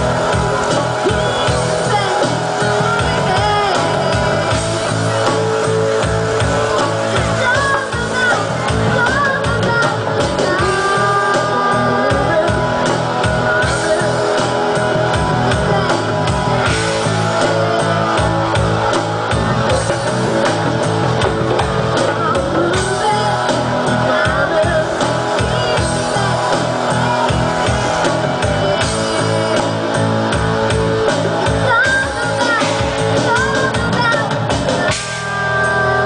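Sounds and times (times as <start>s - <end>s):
drums: 0.0s - 36.0s
guitar: 0.0s - 36.0s
keyboard: 0.0s - 36.0s
girl and woman singing: 7.2s - 12.9s, 22.2s - 26.5s.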